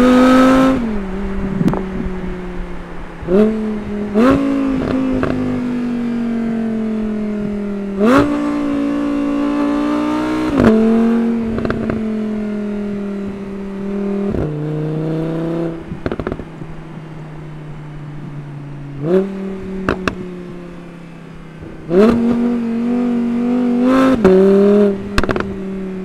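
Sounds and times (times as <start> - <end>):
car engine revving: 0.0 - 26.0
exhaust pops: 1.6 - 2.0, 15.9 - 16.7, 19.0 - 20.3, 25.1 - 25.6.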